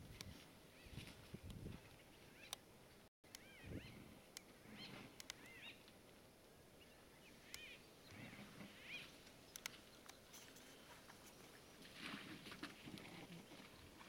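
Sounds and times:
bird calling: 1.8 - 2.6, 3.3 - 5.9, 6.8 - 11.9
soft clicks: 5.2 - 6.0, 9.2 - 10.2.

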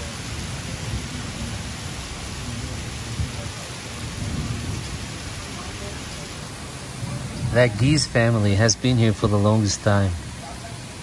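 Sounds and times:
heavy rain on water: 0.0 - 11.0.

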